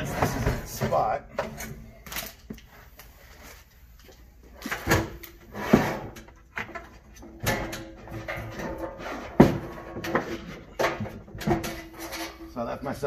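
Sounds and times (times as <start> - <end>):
drawer scraping: 4.6 - 6.8.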